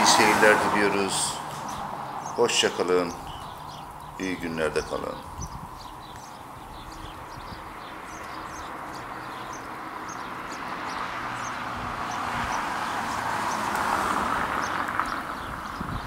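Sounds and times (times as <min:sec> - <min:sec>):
vehicle approaching: 0:00.0 - 0:16.0
small bird chirping: 0:01.4 - 0:13.8.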